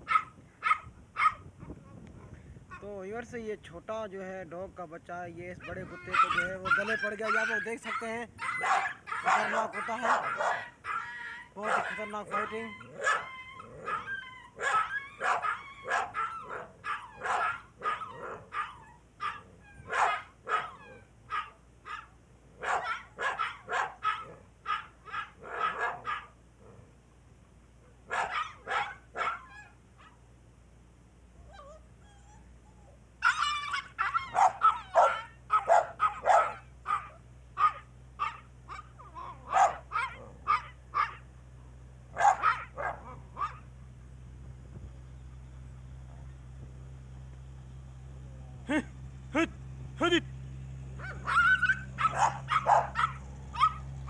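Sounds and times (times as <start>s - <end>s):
puppy yapping: 0.0s - 1.5s, 5.6s - 26.4s, 28.1s - 30.2s, 31.4s - 41.3s, 42.2s - 43.7s, 51.0s - 54.0s.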